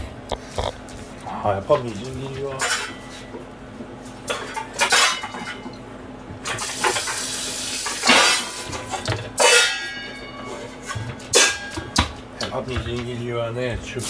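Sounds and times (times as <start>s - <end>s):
dishes and utensils clattering: 1.8s - 3.4s, 4.2s - 5.8s, 7.8s - 12.6s
kitchen tap running: 6.5s - 8.2s.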